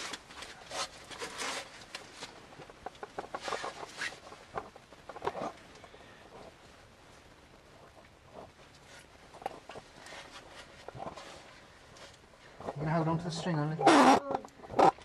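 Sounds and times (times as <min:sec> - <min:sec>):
camera scraping leaves and rock: 0:00.0 - 0:06.6.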